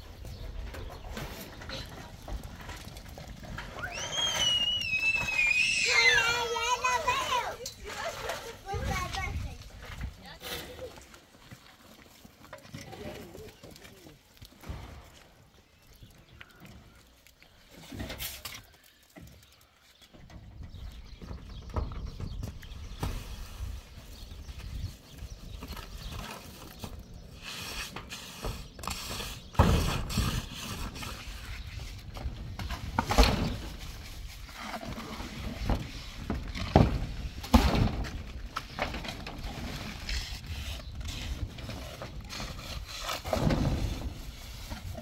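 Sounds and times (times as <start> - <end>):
people moving on metal roofing: 0.0 - 45.0
trowel working wet cement: 26.2 - 32.0, 39.6 - 45.0.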